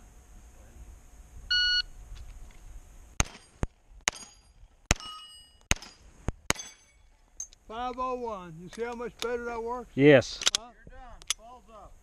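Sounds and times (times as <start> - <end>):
pistol shots: 3.2 - 6.9
steel plates ringing: 4.1 - 7.6.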